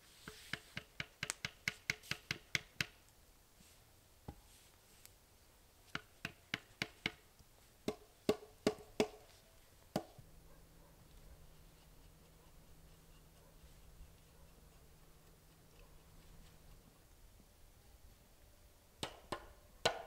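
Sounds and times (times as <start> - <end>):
sharp wooden knocks: 7.9 - 9.2, 19.0 - 20.0.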